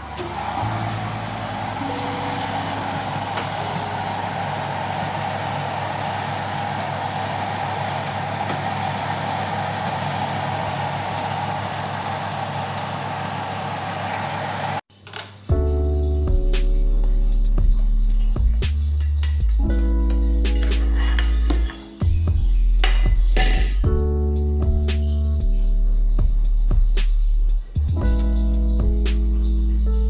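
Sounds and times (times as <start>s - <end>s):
music: 0.0s - 4.0s, 15.4s - 30.0s
oven fan whirring: 0.0s - 14.8s, 17.0s - 24.1s.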